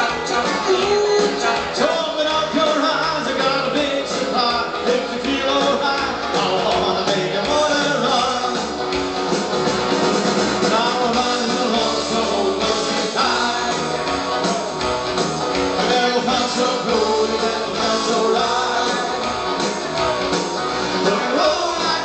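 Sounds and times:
person singing into microphone: 0.0s - 8.7s, 10.6s - 14.1s, 15.8s - 19.3s, 21.0s - 22.0s
instrumental backing music: 0.0s - 22.0s.

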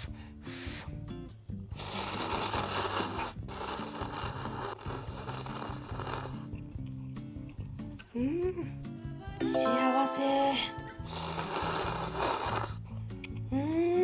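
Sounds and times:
soft background music: 0.0s - 14.0s
person slurping noodles: 1.8s - 6.5s, 11.1s - 12.8s.

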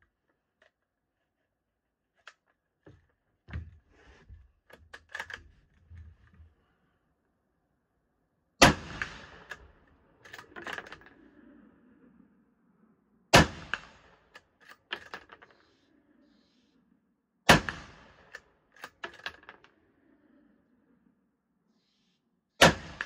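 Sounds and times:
rifle shot echoing: 8.6s - 9.6s.

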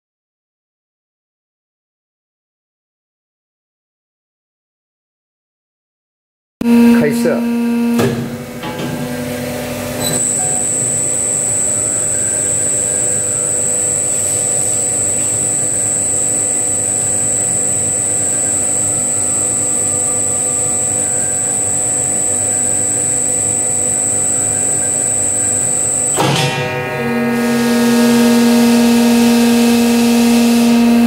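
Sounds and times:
machine humming with high whine: 6.6s - 31.0s.

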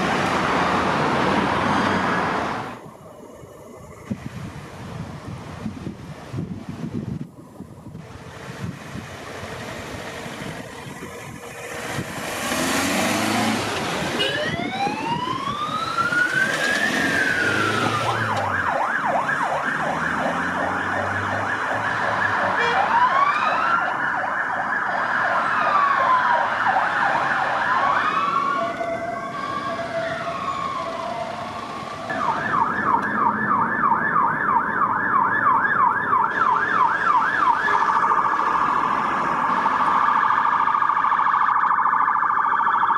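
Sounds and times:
police siren wailing: 10.2s - 42.9s
second siren wailing: 12.9s - 42.9s
police siren yelp: 14.0s - 42.9s
two-tone siren: 14.1s - 42.9s.

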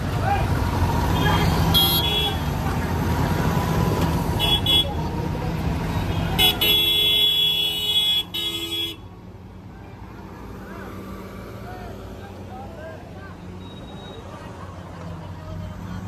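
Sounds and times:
truck horn: 1.1s - 2.6s, 4.4s - 5.0s, 6.1s - 9.1s.

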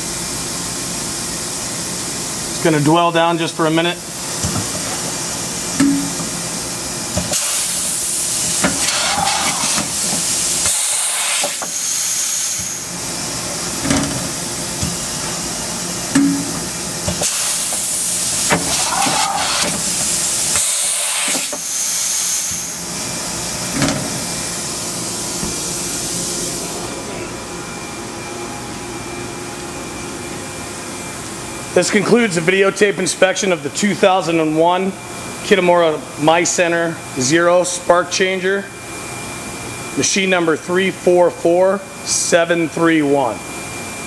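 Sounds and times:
machine hum: 0.0s - 32.7s
turntable whirring: 4.2s - 27.8s
long pneumatic hiss: 7.2s - 12.9s, 16.1s - 22.9s.

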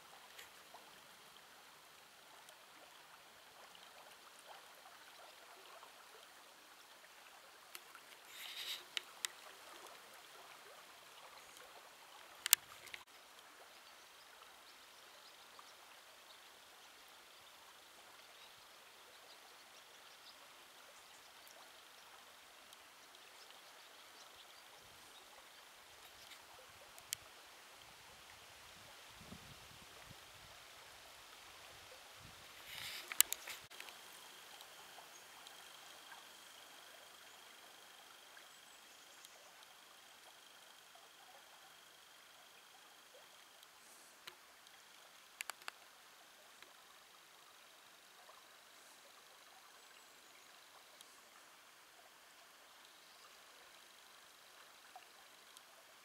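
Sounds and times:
shallow stony river flowing: 0.0s - 56.0s.

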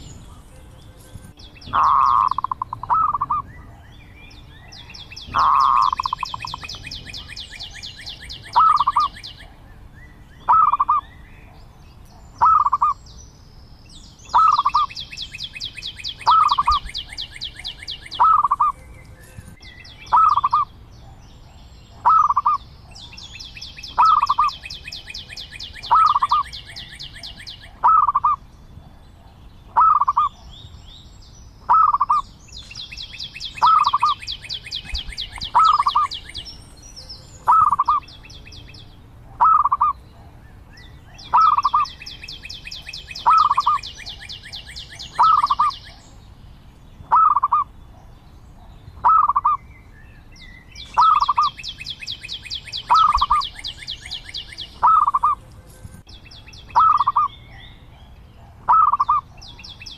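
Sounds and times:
dove calling: 0.0s - 13.1s, 14.2s - 30.8s, 31.6s - 46.2s, 47.0s - 49.7s, 50.5s - 59.9s.

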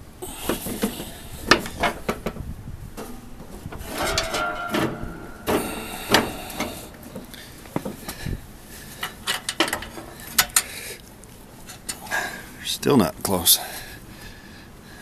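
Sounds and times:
metal clanks and scraping: 0.2s - 8.2s, 9.0s - 10.8s
squeaky scrape: 3.0s - 6.8s.

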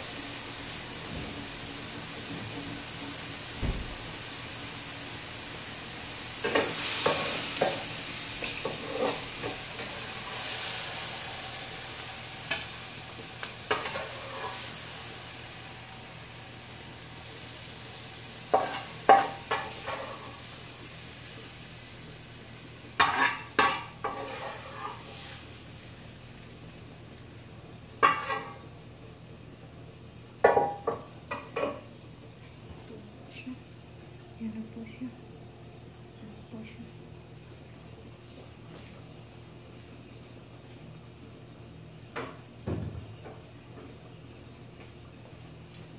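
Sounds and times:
food sizzling in a pan: 0.0s - 32.6s
spatula scraping a pan: 8.4s - 10.8s, 13.7s - 14.8s, 18.5s - 20.4s, 23.0s - 25.4s, 28.0s - 28.6s.

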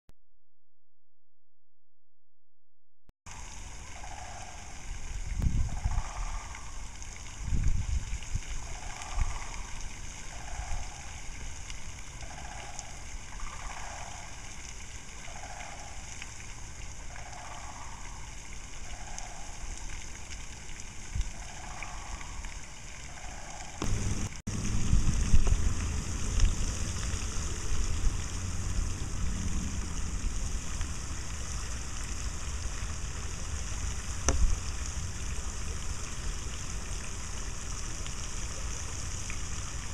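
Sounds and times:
cranes calling: 12.2s - 14.4s, 17.1s - 19.6s, 21.3s - 22.5s
low microphone rumble: 23.8s - 37.7s
steady hiss: 23.8s - 39.9s.

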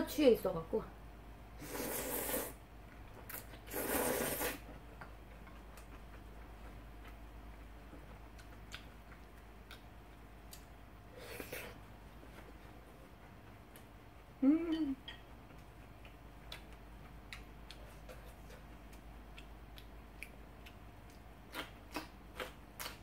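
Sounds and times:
slurping noodles: 1.6s - 2.6s, 3.3s - 4.7s
chewing clicks: 8.1s - 10.7s, 15.1s - 23.0s.

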